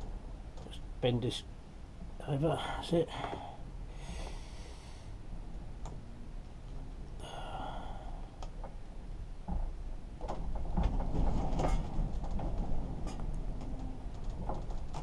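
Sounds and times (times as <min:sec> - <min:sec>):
low steady rumble: 0:00.0 - 0:15.0.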